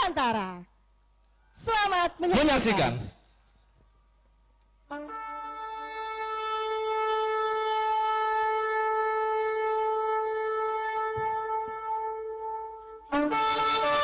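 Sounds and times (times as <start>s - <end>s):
horn blowing long note: 4.9s - 14.0s.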